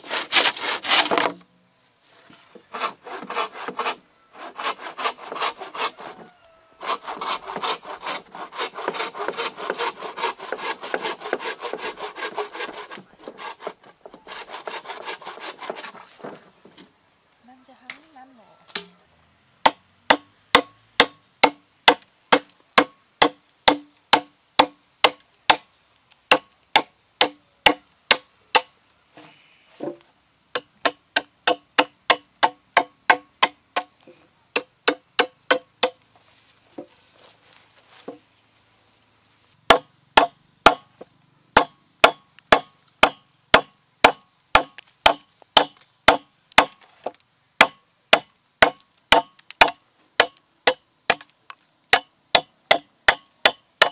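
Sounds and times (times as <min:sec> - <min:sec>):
machete chopping bamboo: 0:00.0 - 0:01.4, 0:06.9 - 0:13.7, 0:18.7 - 0:19.0, 0:19.6 - 0:25.7, 0:26.3 - 0:28.7, 0:29.9 - 0:36.0, 0:39.7 - 0:40.9, 0:41.6 - 0:51.3, 0:51.9 - 0:53.9.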